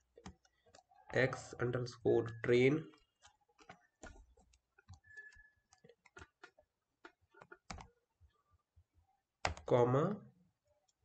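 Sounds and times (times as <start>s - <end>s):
computer keyboard keystrokes: 7.4s - 7.9s.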